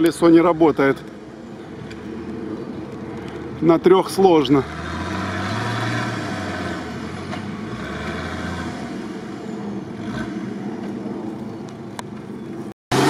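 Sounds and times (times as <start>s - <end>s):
distant engine labouring uphill: 0.0s - 13.0s.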